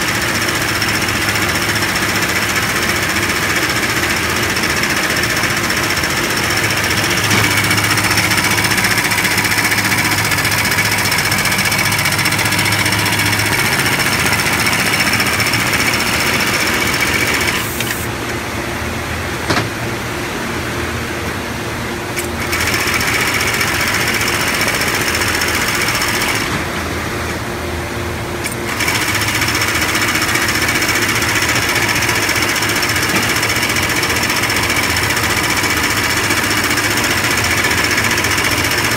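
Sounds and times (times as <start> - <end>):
sewing machine needle clattering: 28.4 - 38.9.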